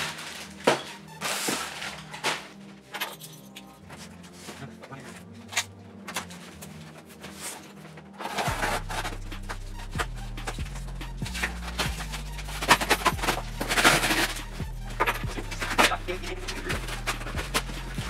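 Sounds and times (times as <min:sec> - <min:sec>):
background music with beat: 0:00.0 - 0:18.0
heavy bass line: 0:08.5 - 0:18.0.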